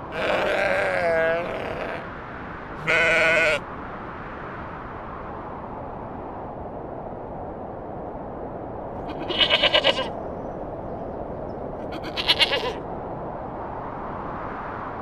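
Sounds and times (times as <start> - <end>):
sheep bleating: 0.1 - 2.1, 2.8 - 3.6, 9.1 - 10.1, 11.9 - 12.8.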